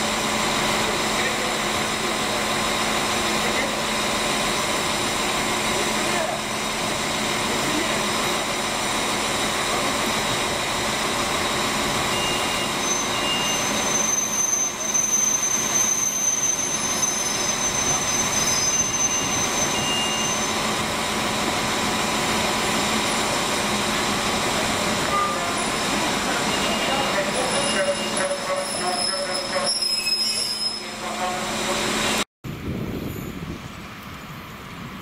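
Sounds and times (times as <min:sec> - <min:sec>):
train rumbling: 0:00.0 - 0:35.0
high wheel squeal: 0:11.3 - 0:20.9, 0:25.0 - 0:32.2.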